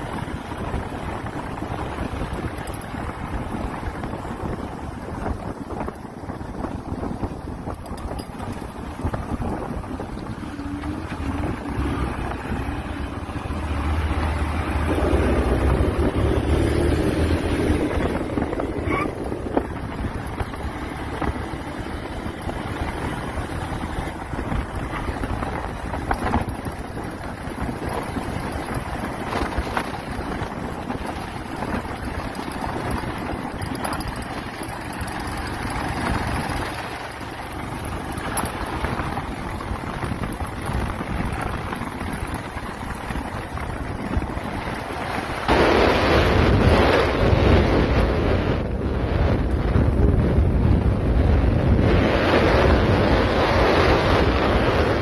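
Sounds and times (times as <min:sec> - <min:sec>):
motorcycle engine: 0:00.0 - 0:55.0
wind rushing over microphone: 0:00.0 - 0:55.0.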